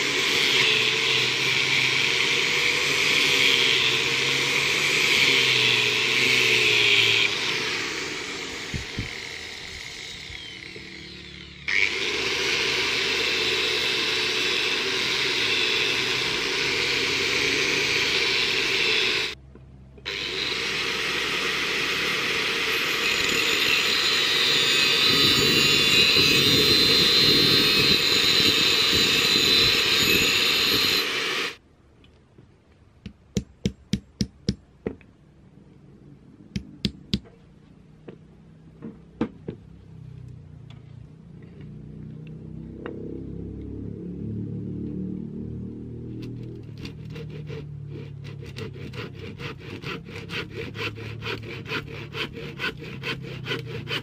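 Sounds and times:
angle grinder cutting a tube: 0.0 - 19.4, 20.1 - 31.6, 46.2 - 54.0.

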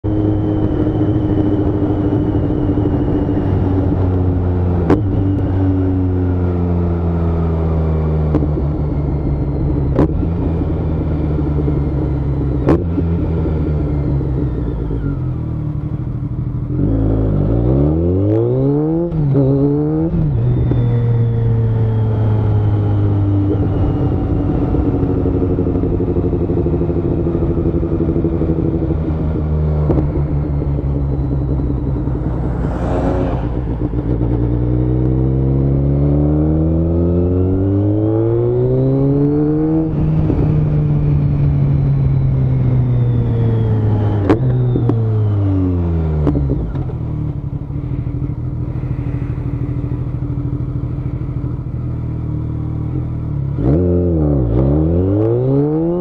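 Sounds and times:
motorcycle engine revving: 0.0 - 56.0.

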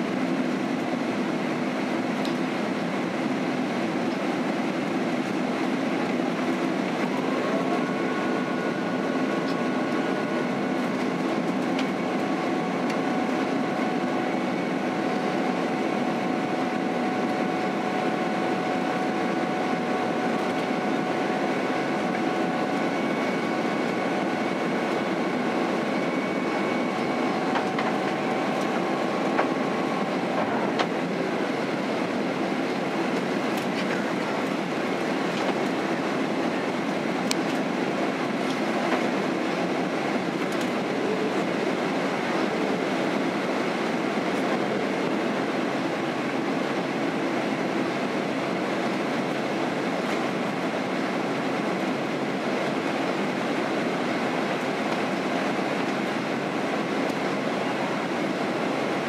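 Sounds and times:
airliner cabin roar: 0.0 - 59.0
faint whine: 6.8 - 46.0.

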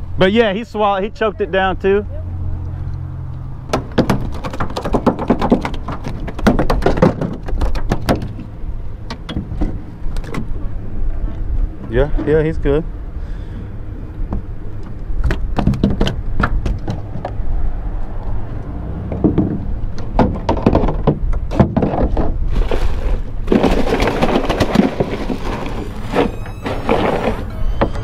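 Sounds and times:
knocks and clicks on plastic: 3.7 - 8.4
foam lid scraping: 22.4 - 28.0.

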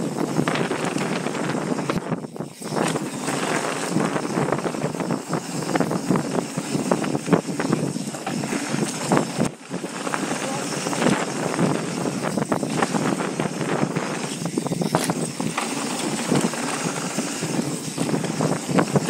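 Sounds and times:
bike rattling over bumps: 0.0 - 19.0
bike tyres crunching over dirt: 0.0 - 19.0
wind buffeting microphone: 0.0 - 19.0.

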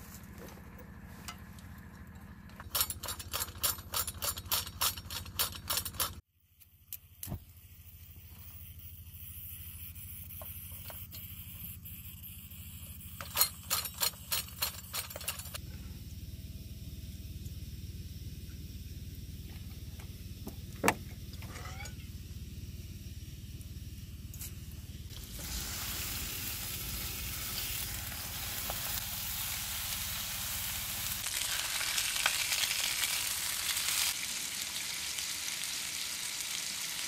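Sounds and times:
gas stove burner hissing: 22.1 - 37.0.

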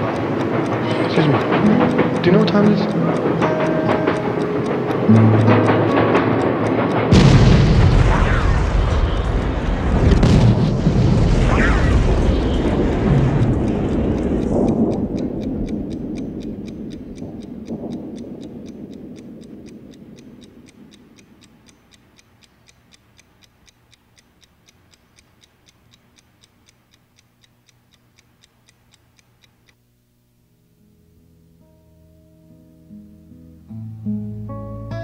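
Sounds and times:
soft guitar music: 0.0 - 7.3, 30.8 - 35.0
clock ticking: 0.0 - 30.6.

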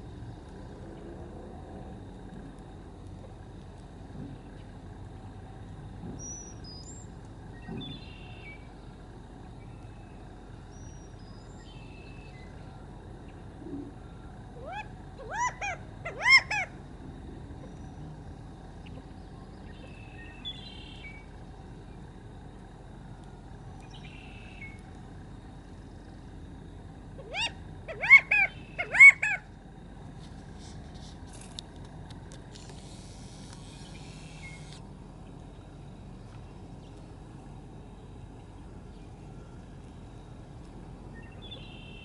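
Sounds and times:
low background noise: 0.0 - 42.0
quail calling: 14.6 - 16.8, 27.2 - 29.5.

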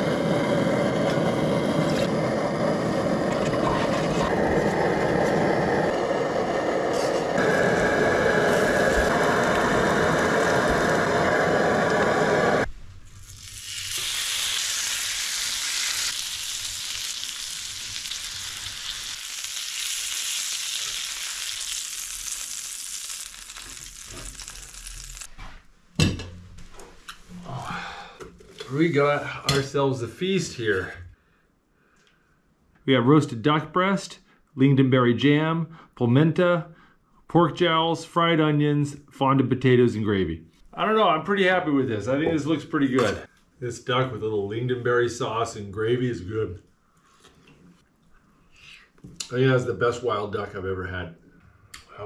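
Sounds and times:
camp stove burner rushing: 0.0 - 12.7
meat sizzling on a griddle: 7.0 - 25.3.

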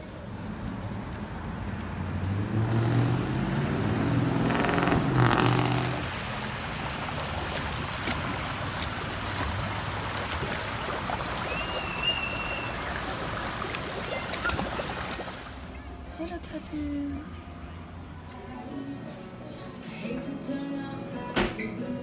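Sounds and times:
vehicle engine passing by: 0.2 - 10.8
shallow water flowing over stone: 5.8 - 15.7.

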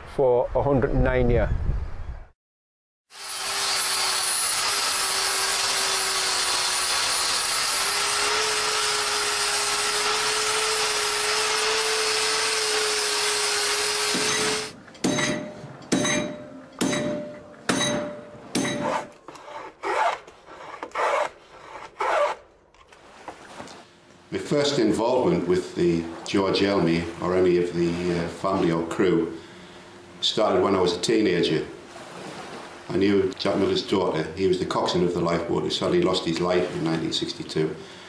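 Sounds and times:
angle grinder grinding: 3.1 - 14.8
hand saw cutting wood: 3.1 - 14.8, 18.6 - 22.4.

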